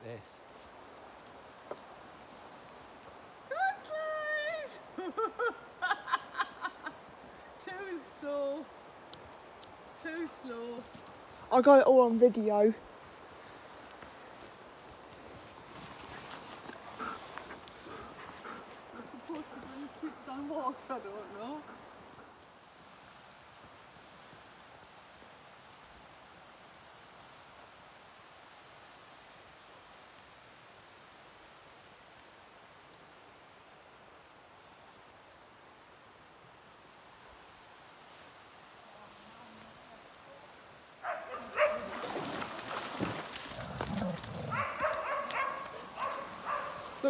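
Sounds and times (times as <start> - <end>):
dogs barking loudly: 41.0 - 42.2, 43.6 - 47.0.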